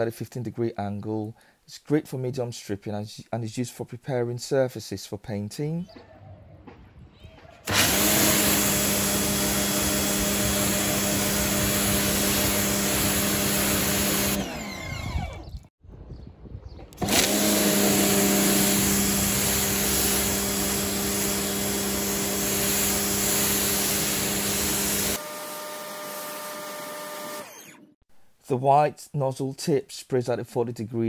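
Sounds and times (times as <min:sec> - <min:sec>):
pressure washer motor hum: 0:07.7 - 0:15.6, 0:17.0 - 0:27.9.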